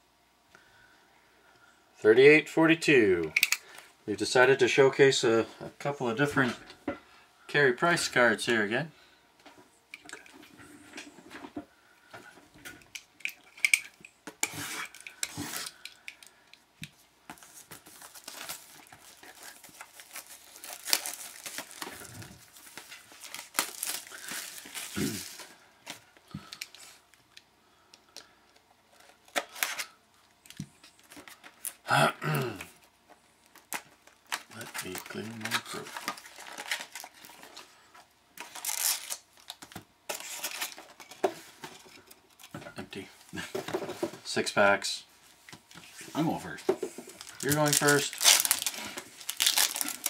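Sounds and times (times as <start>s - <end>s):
plastic wrap crinkling and tearing: 17.4s - 27.0s, 33.4s - 37.7s, 38.4s - 41.2s, 47.1s - 50.0s.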